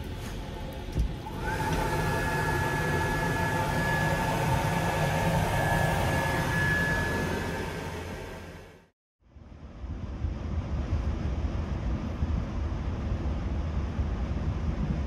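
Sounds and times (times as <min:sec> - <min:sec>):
electric hand dryer whine: 0:00.0 - 0:08.9.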